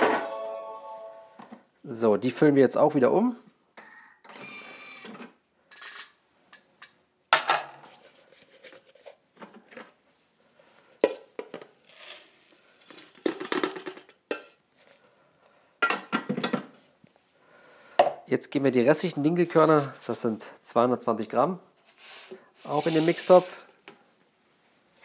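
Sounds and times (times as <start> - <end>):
rustling of meal sliding out: 22.0 - 23.7.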